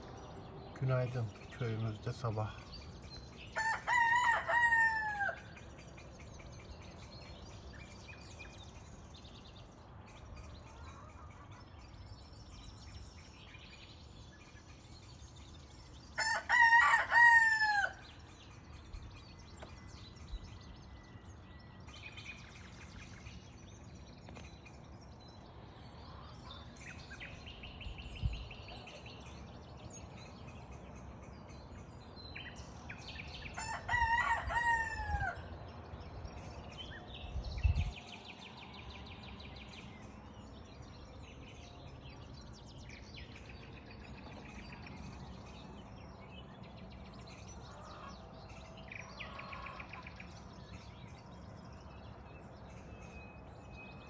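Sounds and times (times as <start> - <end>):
small birds chirping: 0.0 - 4.5, 18.0 - 34.3
rooster crowing: 3.6 - 5.4, 16.2 - 18.0, 33.6 - 35.5.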